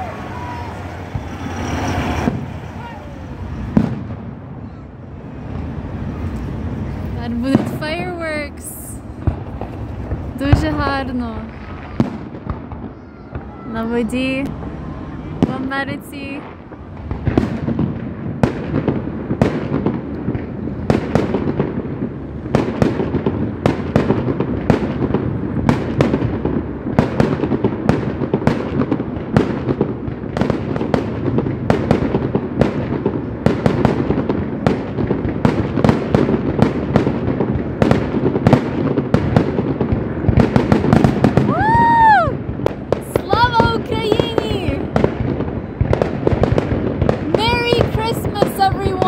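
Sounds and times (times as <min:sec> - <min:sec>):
firework rising whistle: 0:00.0 - 0:10.2, 0:40.9 - 0:43.5
steady rumble: 0:00.0 - 0:12.8
fireworks bursting: 0:00.0 - 0:49.0.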